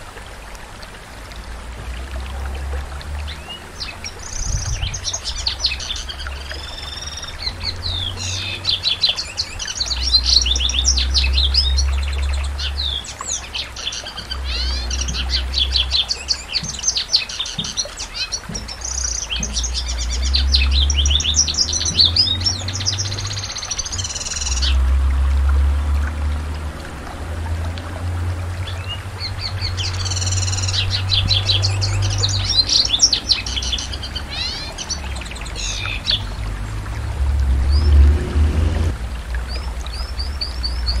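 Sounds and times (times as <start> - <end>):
canary singing trills: 3.3 - 24.8, 28.7 - 36.4.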